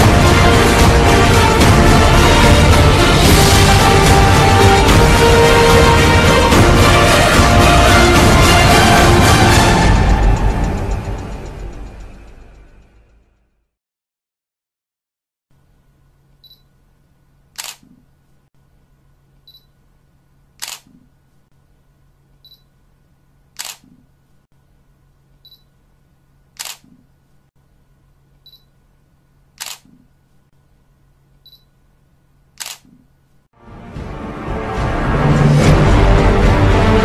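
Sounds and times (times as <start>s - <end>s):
faint low hum: 15.6s - 33.5s
camera shutter clicking: 17.6s - 17.9s, 20.6s - 21.0s, 23.6s - 23.9s, 26.6s - 27.0s, 29.6s - 30.0s, 32.6s - 32.9s
high focus beep: 31.5s - 31.7s.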